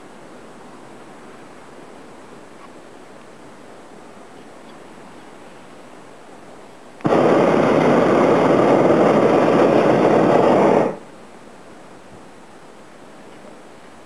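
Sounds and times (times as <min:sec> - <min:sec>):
propane burner roaring: 0:07.0 - 0:11.1.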